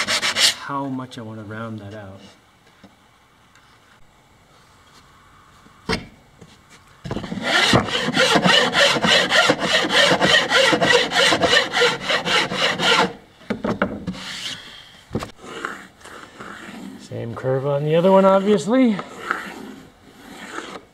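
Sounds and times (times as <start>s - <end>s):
rasping wood edge: 0.0s - 0.6s, 7.2s - 13.2s, 18.0s - 20.9s.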